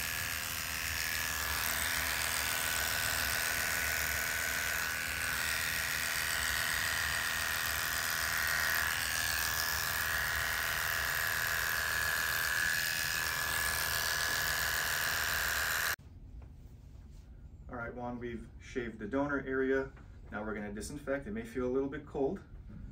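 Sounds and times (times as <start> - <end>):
electric hair clippers buzzing: 0.0 - 16.0.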